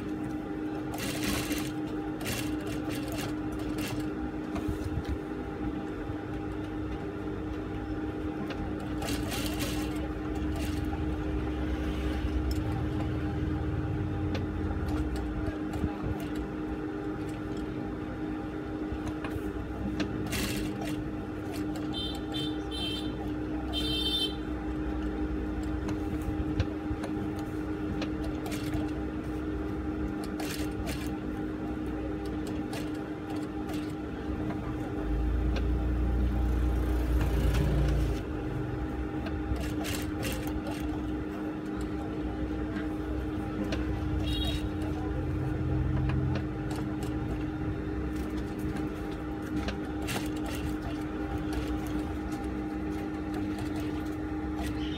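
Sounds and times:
sewing machine motor hum: 0.0s - 54.9s
sewing machine stitching: 0.9s - 4.1s, 8.5s - 13.4s, 20.0s - 23.9s, 27.2s - 29.0s, 30.2s - 31.2s, 35.6s - 38.3s, 39.2s - 42.0s, 48.1s - 54.9s.

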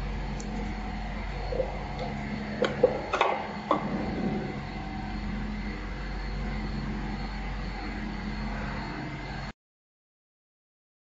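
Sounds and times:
stamping machine hum: 0.0s - 8.4s
sharp clicks and knocks: 1.6s - 3.9s.

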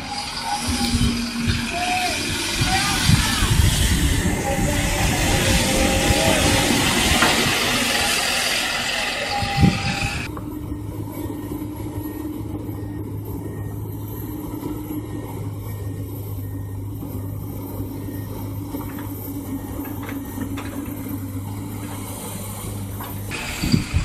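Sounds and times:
excavator diesel engine droning: 0.0s - 24.0s
surf breaking: 0.3s - 10.3s.

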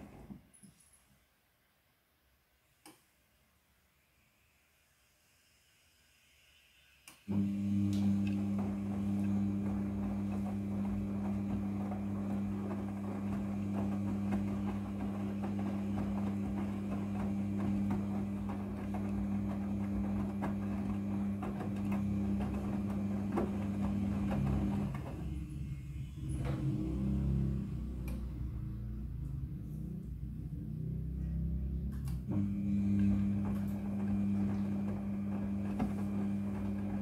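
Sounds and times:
washing machine motor hum: 7.3s - 37.0s
wet laundry tumbling: 7.4s - 25.7s, 32.3s - 37.0s.

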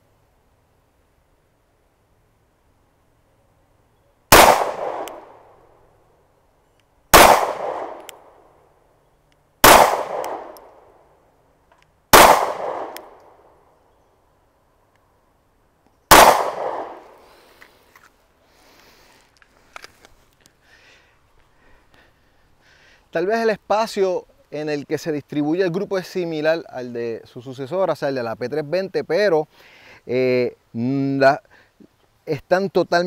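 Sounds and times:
pistol shots with echo: 4.3s - 5.4s, 7.1s - 8.2s, 9.6s - 10.7s, 12.1s - 13.2s, 16.1s - 17.0s.

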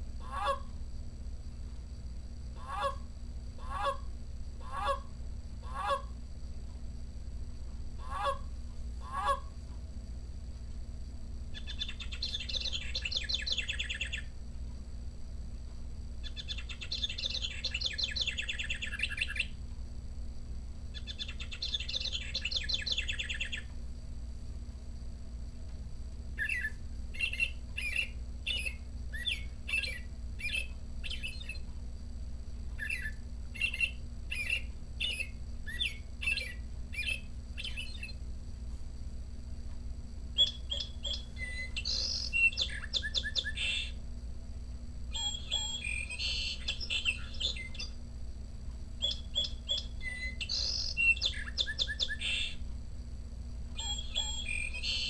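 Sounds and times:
recorded bird song from speaker: 2.5s - 6.2s, 7.9s - 9.6s, 11.5s - 14.4s, 16.2s - 19.7s, 20.9s - 23.8s, 26.3s - 31.8s, 32.6s - 38.3s, 40.3s - 44.1s, 45.1s - 48.1s, 48.9s - 52.8s, 53.7s - 55.0s
short repeated bird notes: 45.2s - 47.8s.

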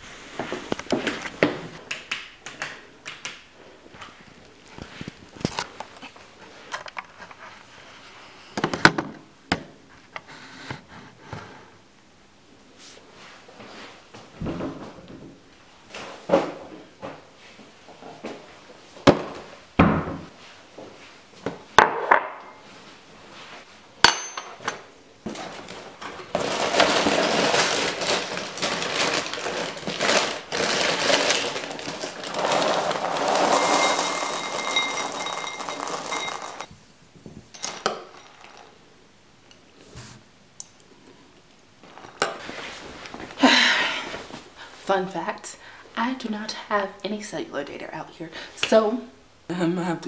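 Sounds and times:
cereal poured into a bowl: 26.4s - 36.7s
ceramic bowl clinking: 33.4s - 36.7s.

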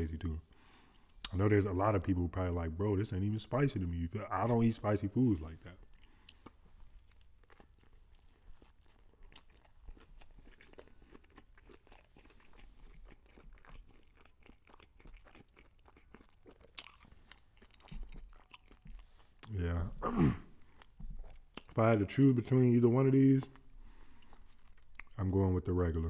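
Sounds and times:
chewing crispy fried chicken: 3.2s - 26.0s.

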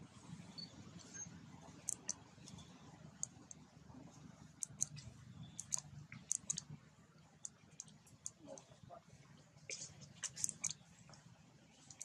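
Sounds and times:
sharp high clicks: 1.8s - 2.6s, 4.6s - 6.7s, 10.2s - 10.8s.

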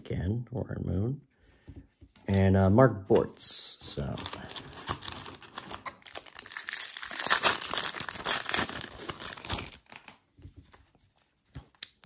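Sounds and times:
foil wrapper crinkling and tearing: 3.9s - 10.2s.

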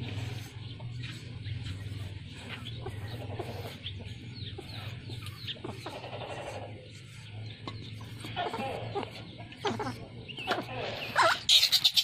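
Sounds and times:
steady low hum: 0.0s - 11.5s
chickens clucking: 0.0s - 12.0s.

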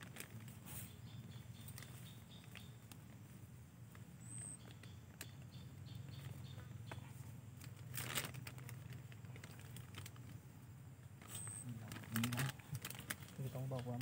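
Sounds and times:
plastic bag rustling: 0.0s - 1.0s, 7.6s - 10.4s, 11.2s - 14.0s.

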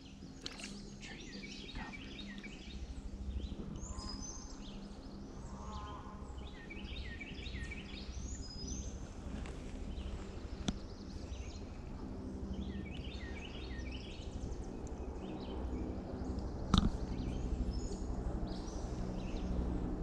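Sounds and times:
songbirds chirping: 0.0s - 19.8s
steady low rumble: 0.0s - 20.0s.

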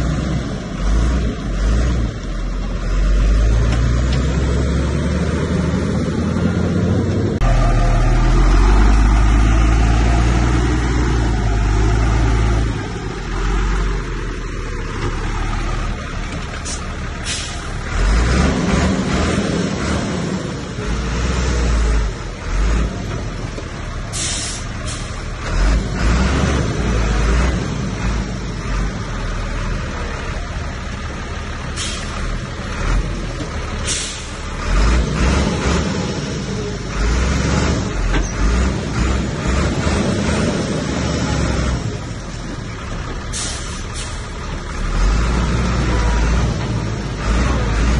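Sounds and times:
bulldozer engine rumbling: 0.0s - 47.9s
short sharp hisses: 24.1s - 25.2s, 31.8s - 32.2s, 33.8s - 34.4s, 43.3s - 44.2s.

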